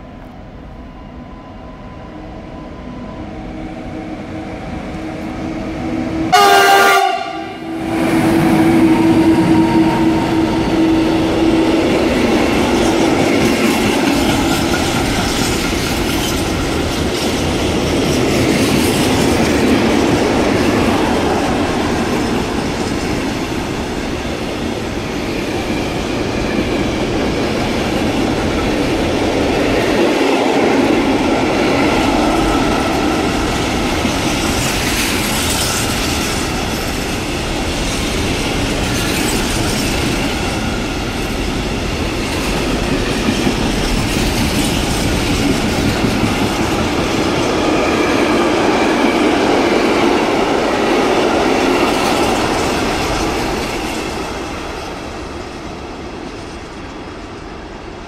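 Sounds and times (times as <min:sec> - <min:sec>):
electric locomotive approaching: 0:00.0 - 0:58.0
loud train horn blast: 0:04.0 - 0:11.5.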